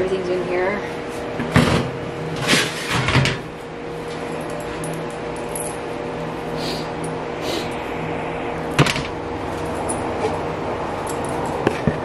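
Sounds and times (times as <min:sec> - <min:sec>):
low appliance hum: 0:00.0 - 0:12.0.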